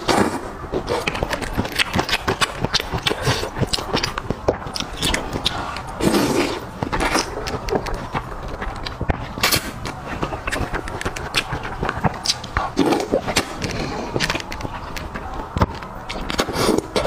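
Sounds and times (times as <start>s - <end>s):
chewing noodles: 0.1s - 17.0s
wet mouth clicks and smacks: 1.0s - 6.0s, 9.8s - 15.0s.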